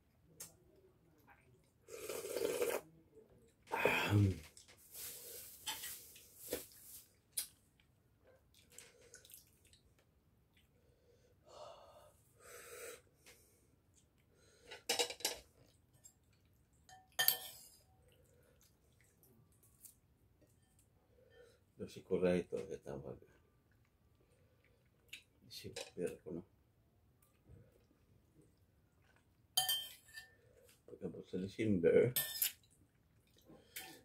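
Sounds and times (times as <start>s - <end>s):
breathing and mouth noises: 1.8s - 2.8s
dishes and cutlery clinking: 14.7s - 16.2s, 16.8s - 17.9s, 29.6s - 30.4s, 32.1s - 32.7s.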